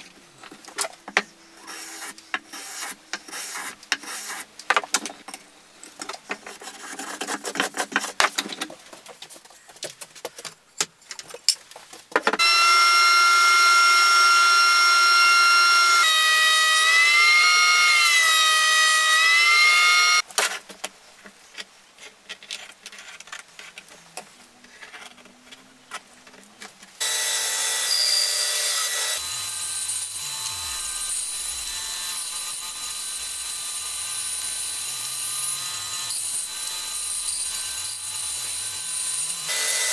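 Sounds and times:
bandsaw cutting wood: 27.0 - 39.9.

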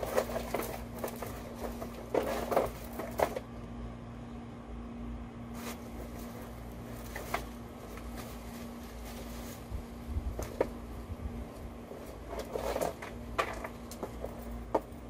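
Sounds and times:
objects knocking and clicking: 0.0 - 3.4, 12.3 - 15.0
steady faint hum: 0.0 - 15.0.

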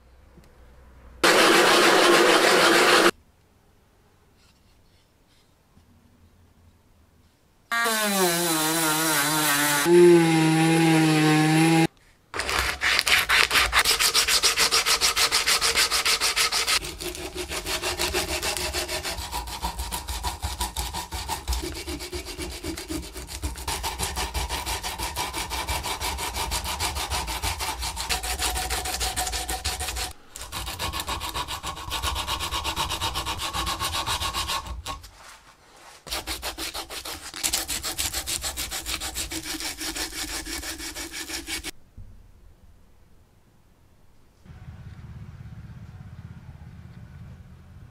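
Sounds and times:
sandpaper rubbing on wood: 1.2 - 3.1, 7.8 - 41.7.

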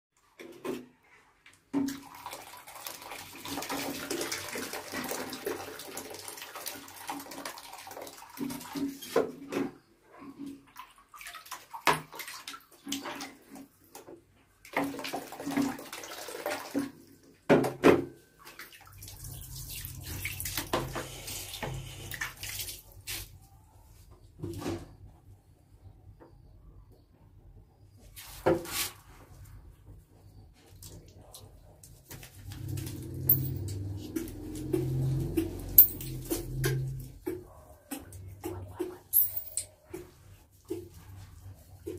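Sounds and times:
water poured into plastic basin: 1.7 - 9.1, 14.6 - 17.4, 18.4 - 23.3, 32.2 - 37.3
water splashing and trickling: 1.7 - 17.4, 18.3 - 23.4, 32.1 - 41.9.

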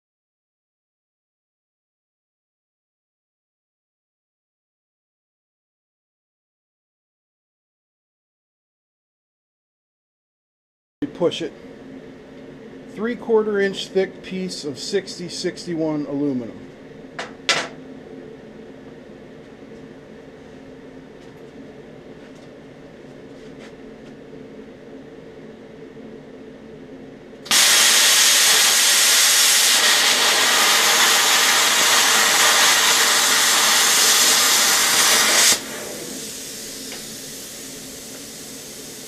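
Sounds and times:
plasma cutter arc hissing: 27.5 - 39.0.

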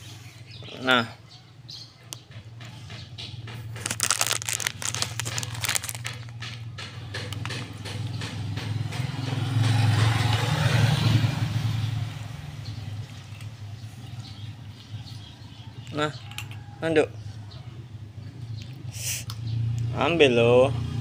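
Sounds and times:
rapid clicking and rattling: 2.4 - 9.0.

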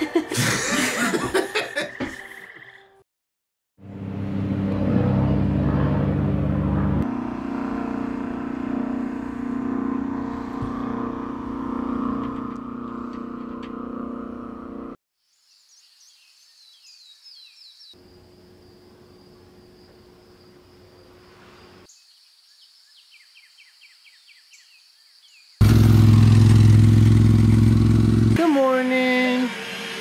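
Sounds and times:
birds chirping: 1.6 - 2.9
loud low droning: 3.8 - 15.0, 25.6 - 30.0
steady humming: 4.0 - 15.0
high insect trill: 18.0 - 25.1.

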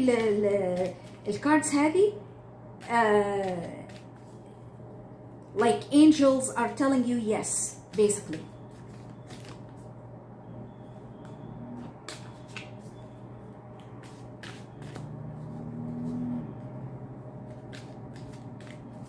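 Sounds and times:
cards being shuffled: 0.0 - 1.7, 2.8 - 4.6, 7.8 - 9.9, 11.2 - 16.3, 17.3 - 19.0
steady low hum: 0.0 - 19.0.

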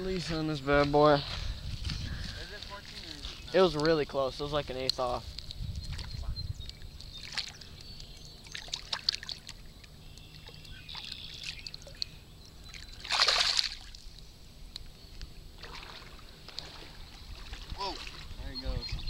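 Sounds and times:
water splashing and trickling: 2.7 - 14.4, 15.5 - 19.0
loud splash: 13.0 - 14.0.

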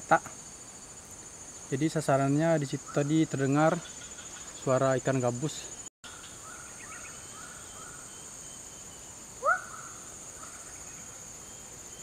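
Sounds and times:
insects droning: 0.0 - 12.0
faint animal calls: 9.4 - 10.9.

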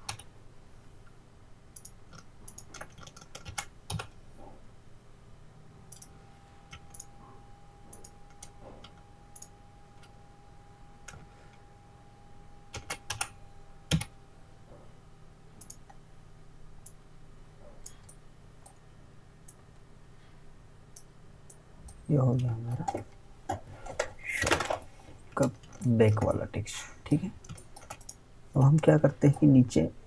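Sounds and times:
keyboard and mouse clicking: 1.8 - 4.2, 5.9 - 6.1, 6.7 - 7.1, 7.9 - 10.1, 12.7 - 13.3, 13.9 - 14.1, 15.6 - 16.0, 27.4 - 29.5.

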